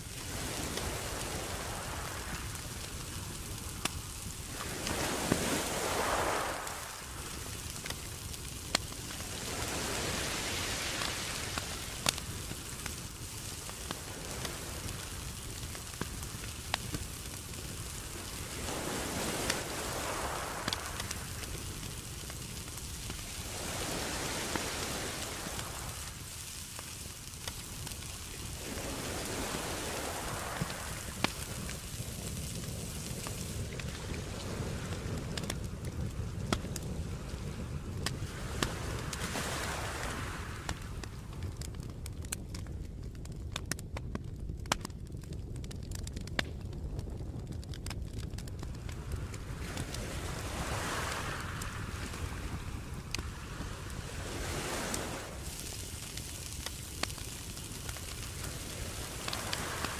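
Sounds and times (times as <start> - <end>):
seafood sizzling on a grill: 0.0 - 35.4, 54.0 - 59.9
charcoal crackling and popping: 0.0 - 59.9.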